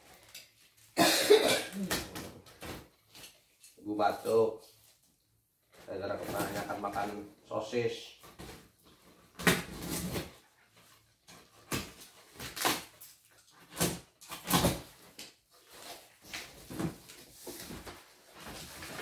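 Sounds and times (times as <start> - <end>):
packing tape ripping: 9.4 - 10.4, 11.6 - 16.8.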